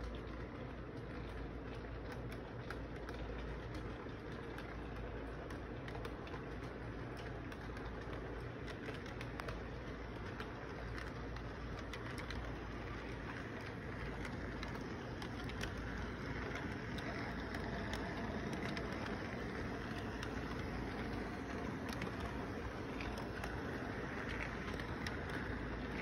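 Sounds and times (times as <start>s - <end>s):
model train rumbling on track: 0.0s - 26.0s
wheels clicking on rails: 0.0s - 26.0s.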